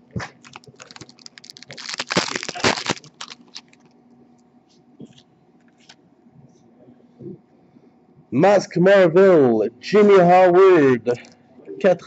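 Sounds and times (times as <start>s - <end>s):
foil pack ripping open: 0.2s - 3.9s
foil wrapper crinkling: 0.2s - 3.9s.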